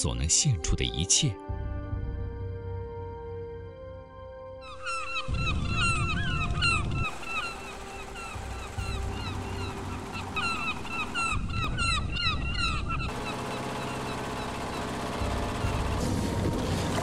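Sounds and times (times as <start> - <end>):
seabirds calling: 4.6 - 17.0.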